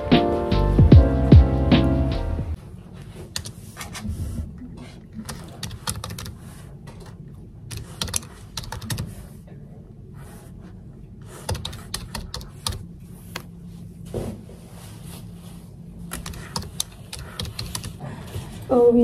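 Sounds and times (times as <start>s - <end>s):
typing on computer keyboard: 5.2s - 6.4s, 7.7s - 9.2s, 11.4s - 12.8s, 16.1s - 18.0s.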